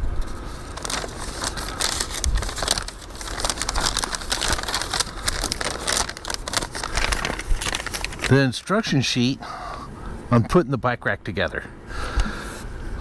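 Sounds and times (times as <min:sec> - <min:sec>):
paper crinkling and rustling: 0:00.2 - 0:08.7.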